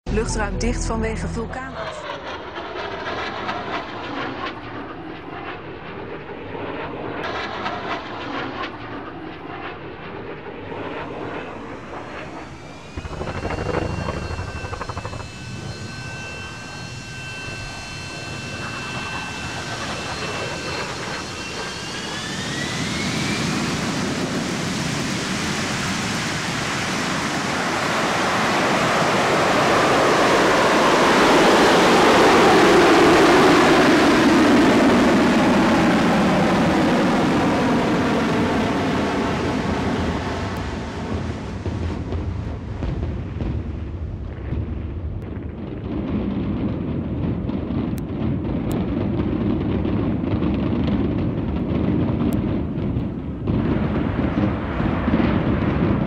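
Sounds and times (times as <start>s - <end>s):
jet aircraft passing: 0.1s - 44.5s
turbine whine: 0.1s - 56.0s.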